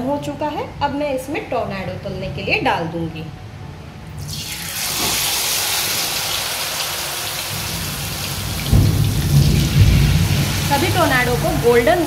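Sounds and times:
hot oil sizzling: 0:04.2 - 0:12.0.

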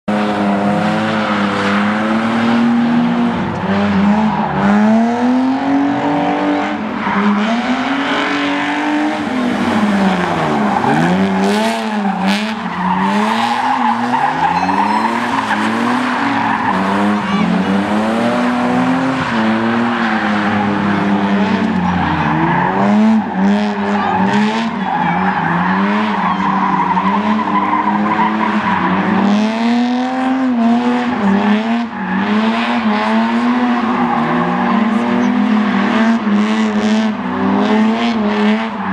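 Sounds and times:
car engines revving hard: 0:00.0 - 0:38.9
tyres squealing: 0:09.9 - 0:17.7.

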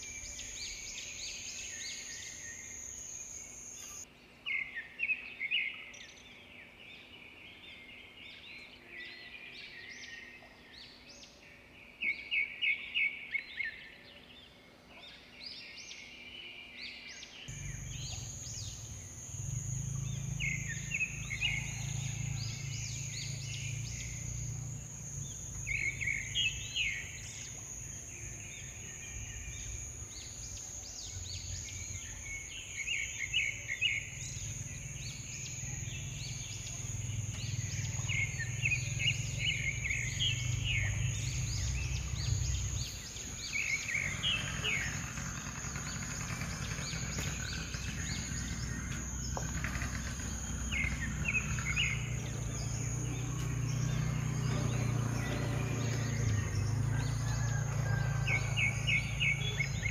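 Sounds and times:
small birds chirping: 0:17.4 - 0:59.9
thin steady high tone: 0:17.5 - 0:45.0.

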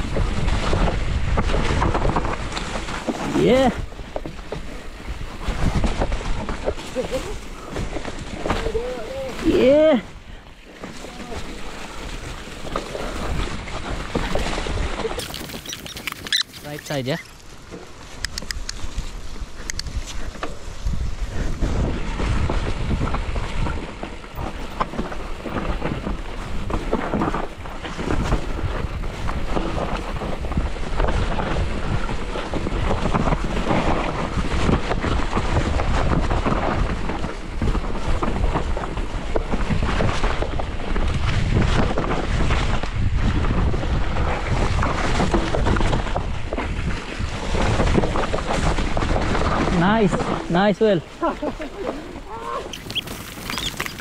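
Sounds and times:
wind buffeting microphone: 0:00.0 - 0:17.3, 0:18.0 - 0:54.0
tyres on wet ground: 0:01.4 - 0:20.5, 0:45.6 - 0:54.0.

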